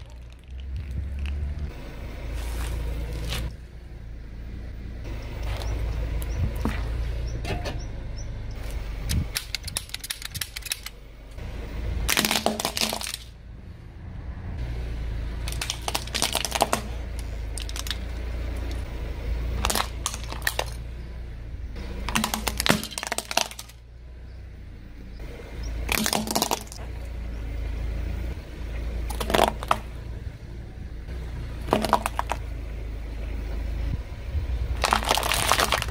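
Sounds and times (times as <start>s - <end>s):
plastic cracking under tyre: 0.0s - 1.7s, 9.3s - 11.0s, 12.1s - 13.3s, 15.4s - 18.1s, 19.6s - 20.8s, 22.1s - 23.8s, 25.9s - 26.8s, 29.1s - 29.9s, 31.6s - 32.5s, 34.8s - 35.9s
car rumbling: 0.0s - 35.9s.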